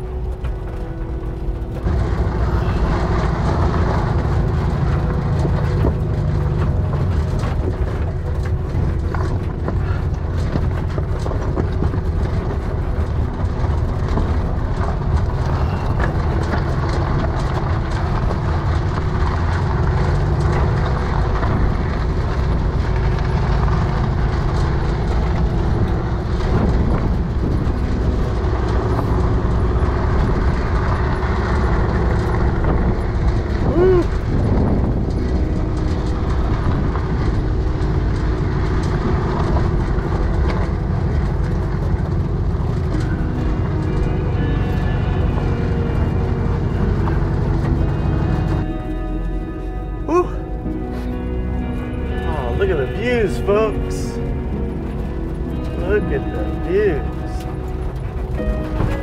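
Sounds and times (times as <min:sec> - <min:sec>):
rattles and clicks: 0:00.0 - 0:59.0
van engine rumbling: 0:00.0 - 0:59.0.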